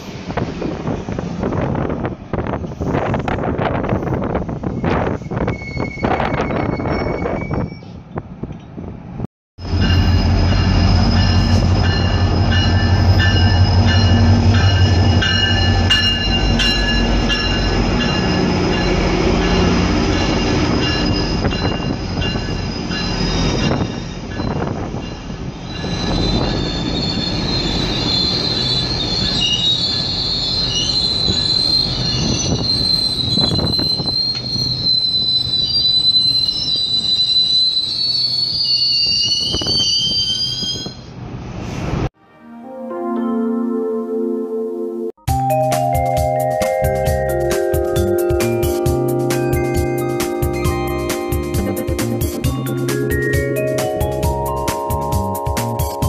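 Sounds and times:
diesel locomotive rumbling: 0.0 - 42.1, 45.3 - 56.0
train wheels squealing: 2.6 - 8.2, 9.7 - 41.2.

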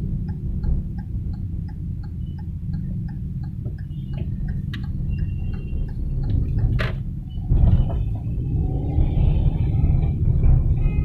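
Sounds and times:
road and engine rumble: 0.0 - 11.0
turn-signal indicator ticking: 0.2 - 7.1.

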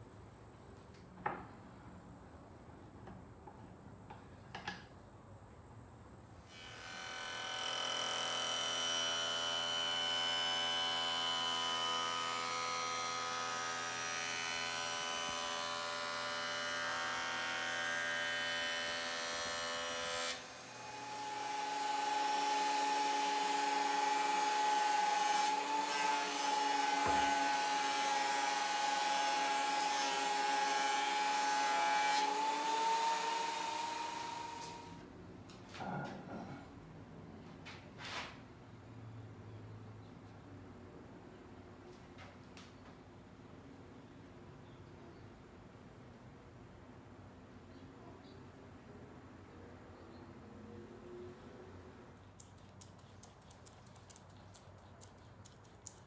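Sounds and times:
power tool motor humming and whining: 6.5 - 31.5.

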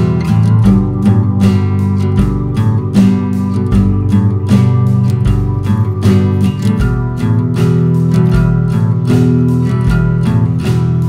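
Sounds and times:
low bass line: 0.0 - 11.0
strummed acoustic guitar: 0.0 - 11.0.

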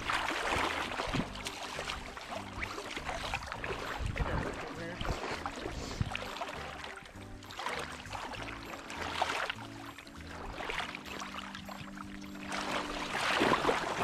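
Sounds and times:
low rumble of disturbed water: 0.0 - 14.0
river water splashing around net: 0.0 - 14.0.

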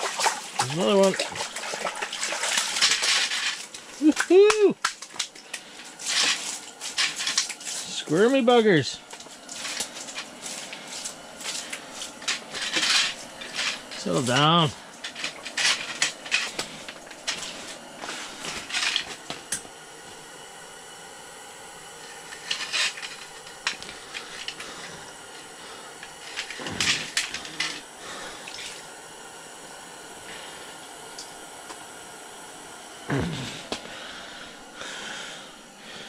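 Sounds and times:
wet splashes: 0.0 - 3.1
faint steady hum: 0.0 - 36.0.

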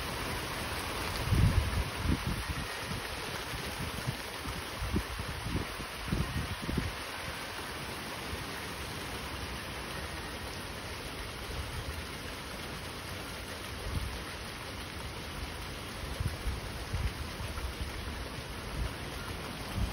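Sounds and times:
rain pouring: 0.0 - 19.9
wind gusts buffeting microphone: 1.1 - 7.0.

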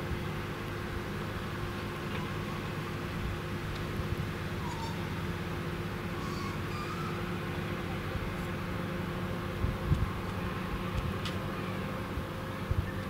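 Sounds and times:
diesel engine idling: 0.0 - 13.0
faint voices: 6.2 - 8.8.

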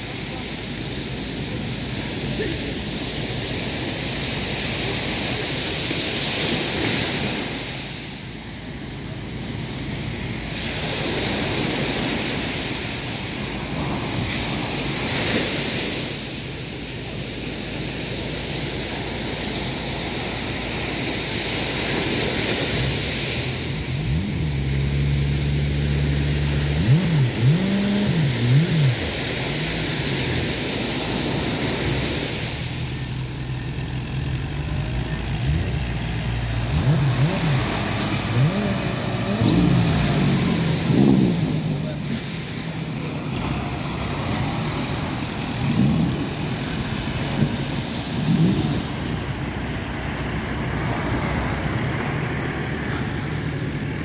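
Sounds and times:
boat engine revving: 0.0 - 54.0
surf breaking: 0.0 - 54.0
wind on microphone: 25.8 - 50.6.

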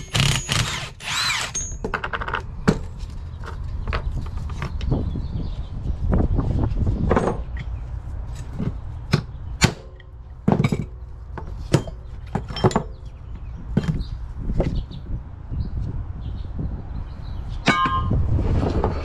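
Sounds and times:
metal parts clanking on workbench: 11.7 - 13.0
steady low rumble: 13.0 - 19.0.

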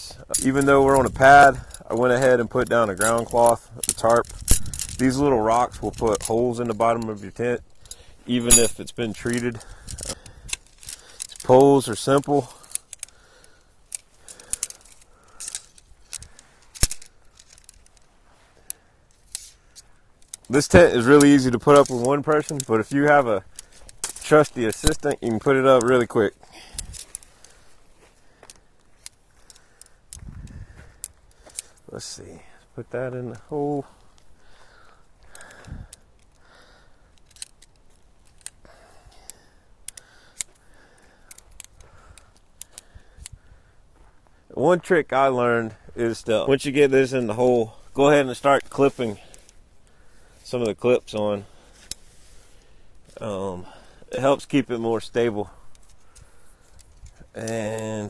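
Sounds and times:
tent pole sections clacking: 0.0 - 32.4, 33.2 - 43.4, 45.4 - 58.0
light rattling and rustling: 0.0 - 32.6, 45.7 - 58.0.

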